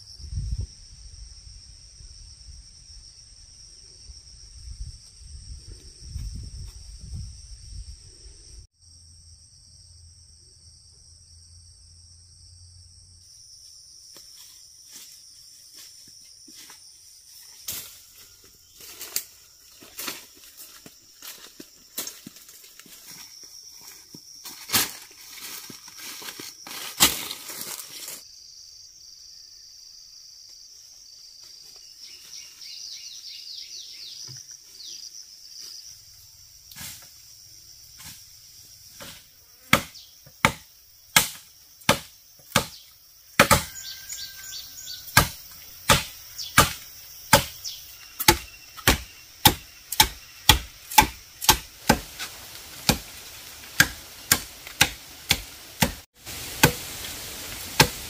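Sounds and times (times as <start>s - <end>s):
insects droning: 0.0s - 58.0s
hand tool striking wood: 39.0s - 43.9s, 45.2s - 56.0s, 56.6s - 56.9s, 57.8s - 58.0s.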